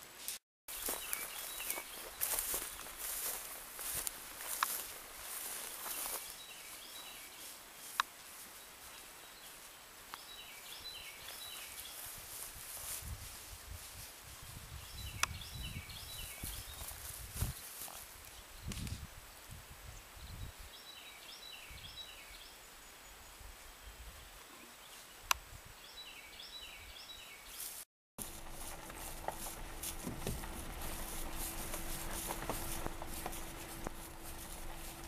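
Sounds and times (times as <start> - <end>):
outdoor background noise: 0.0 - 35.0
small bird singing: 0.8 - 3.4, 8.9 - 12.1, 14.8 - 17.0, 25.8 - 27.7
faint steady hum: 28.2 - 35.0.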